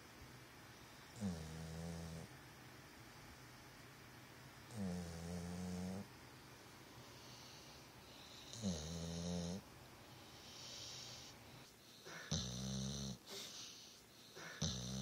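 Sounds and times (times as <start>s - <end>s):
dog snoring: 1.1s - 2.3s, 4.7s - 6.1s, 7.2s - 9.6s, 10.3s - 15.0s
breathy hisses: 6.9s - 15.0s.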